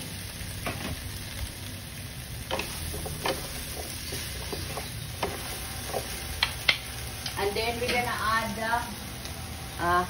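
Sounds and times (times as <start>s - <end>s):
food sizzling in a wok: 0.0s - 10.0s
wooden spatula knocking on pan: 2.5s - 6.8s.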